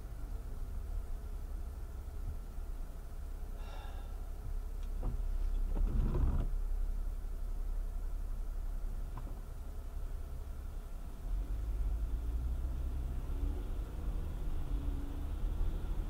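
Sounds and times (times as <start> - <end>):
car cabin low hum: 0.0 - 16.0
windshield wipers swishing: 4.8 - 6.5.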